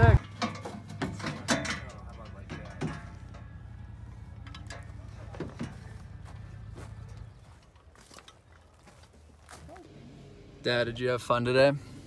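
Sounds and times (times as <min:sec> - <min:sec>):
knocks and clicks of handling: 0:00.2 - 0:03.7, 0:04.3 - 0:08.7.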